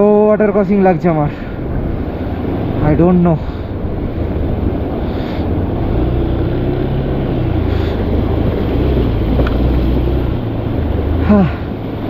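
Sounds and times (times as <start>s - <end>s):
wind rushing: 1.0s - 12.0s
motorcycle engine at low revs: 3.6s - 12.0s.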